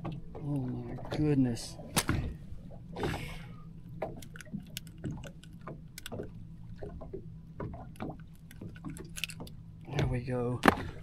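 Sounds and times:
low steady hum: 0.0 - 11.0
water lapping at boat hull: 0.0 - 11.0.

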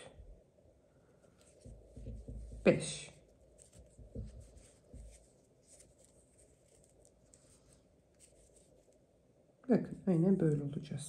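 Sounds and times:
crochet hook rustling yarn: 0.0 - 11.0
small handling sounds: 1.0 - 9.5.

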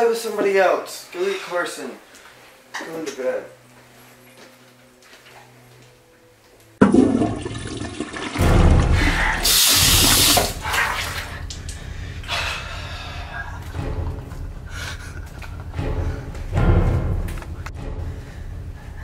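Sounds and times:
tap water rushing into basin: 9.4 - 11.4.

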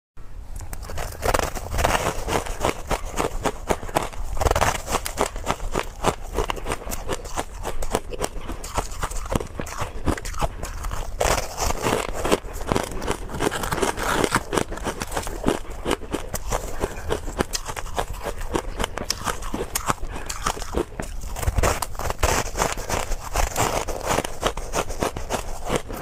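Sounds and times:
ice crunching while chewed: 0.6 - 26.0.

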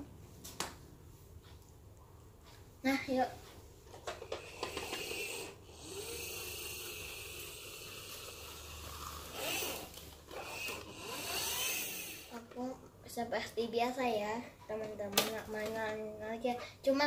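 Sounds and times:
toy wheels rolling on carpet: 3.9 - 12.6.

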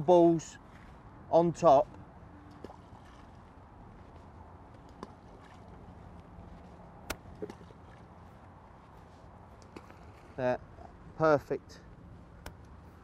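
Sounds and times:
choppy water: 0.0 - 11.1
faint sharp clicks: 12.4 - 12.8.

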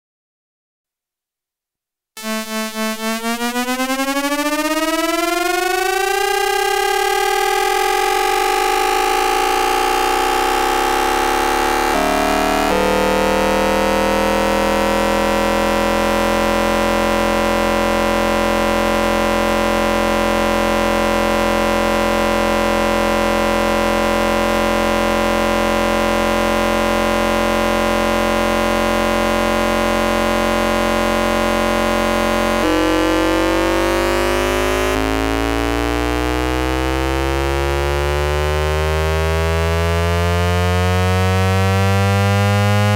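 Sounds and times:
train inverter electronic whine: 2.2 - 38.7
steady tone: 3.2 - 23.8, 28.8 - 37.0.

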